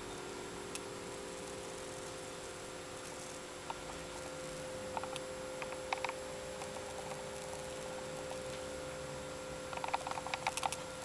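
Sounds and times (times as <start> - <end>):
electrical room hum: 0.0 - 11.0
light clicks and ticks: 9.7 - 10.8.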